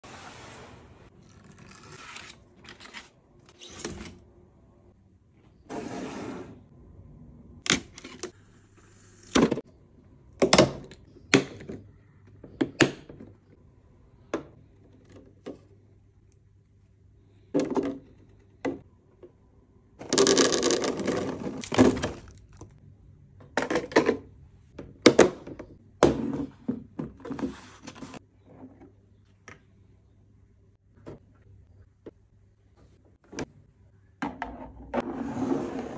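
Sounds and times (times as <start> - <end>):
plastic boxes knocking and clicking: 20.0 - 22.7.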